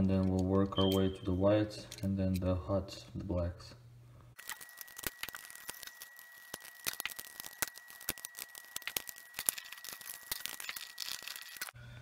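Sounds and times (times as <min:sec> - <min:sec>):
stiff wires scraping: 0:04.4 - 0:11.8.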